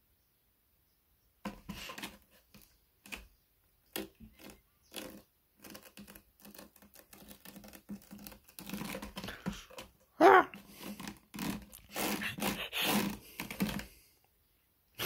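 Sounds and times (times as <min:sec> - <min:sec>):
kitten claws scratching rope post: 0:01.4 - 0:14.0.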